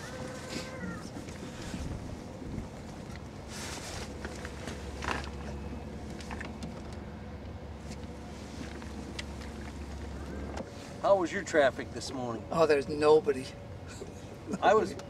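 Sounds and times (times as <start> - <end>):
electric trolling motor humming: 0.0 - 15.0
short rustles: 2.8 - 5.4.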